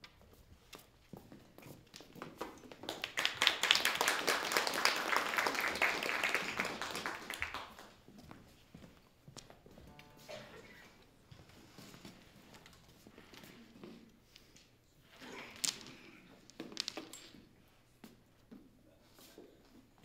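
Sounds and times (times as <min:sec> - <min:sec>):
audience applause: 0:03.0 - 0:07.9.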